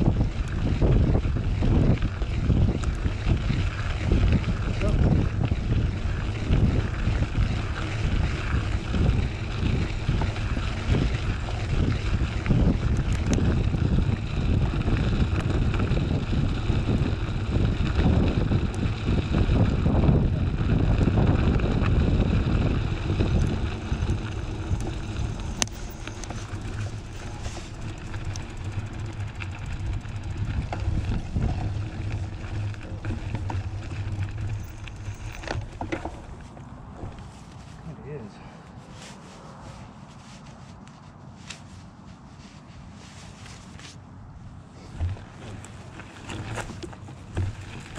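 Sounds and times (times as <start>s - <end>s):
wind buffeting microphone: 0.0s - 37.3s, 44.3s - 47.9s
bike tyre rolling on gravel: 0.0s - 38.3s, 43.0s - 47.9s
small ticks from stones: 32.1s - 35.9s.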